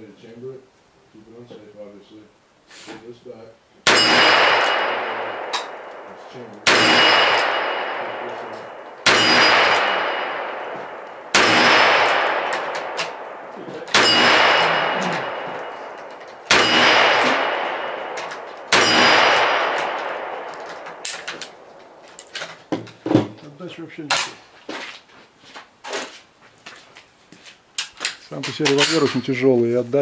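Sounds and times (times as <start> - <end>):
revolver shots: 3.9 - 22.0
steel target ringing: 3.9 - 22.1.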